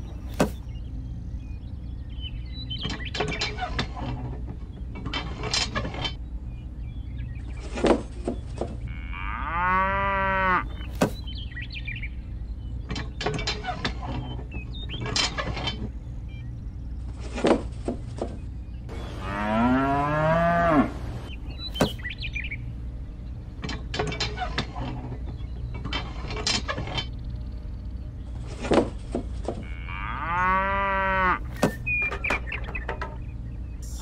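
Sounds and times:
cow mooing: 0:08.9 - 0:10.7, 0:19.0 - 0:21.2, 0:29.6 - 0:31.5.

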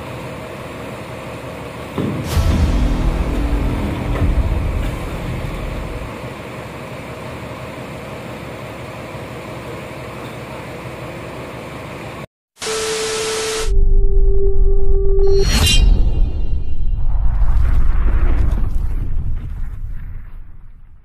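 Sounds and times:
low engine rumble: 0:00.0 - 0:12.2
static glitch noise: 0:12.6 - 0:13.8.

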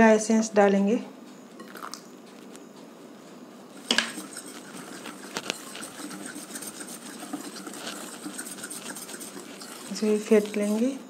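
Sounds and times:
whisk scraping glass bowl: 0:03.7 - 0:11.0.

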